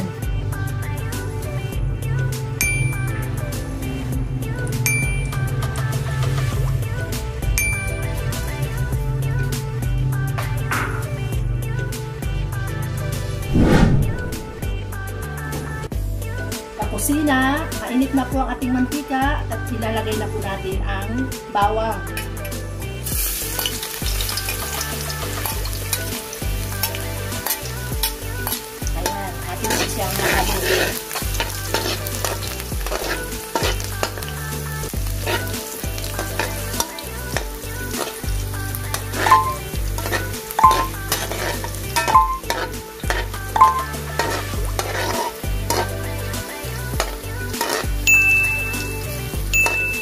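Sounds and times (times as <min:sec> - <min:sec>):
sharp metal clinks: 0:04.9 - 0:05.4, 0:48.1 - 0:49.0, 0:49.6 - 0:50.0
garlic sizzling in oil: 0:23.0 - 0:50.0
metal ladle scraping wok: 0:29.6 - 0:34.3, 0:35.2 - 0:36.9, 0:38.9 - 0:46.0, 0:47.0 - 0:48.0.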